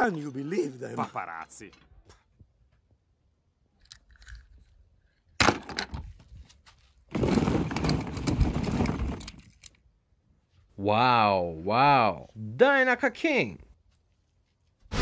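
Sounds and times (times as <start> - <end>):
plastic balls clattering: 7.1 - 9.8.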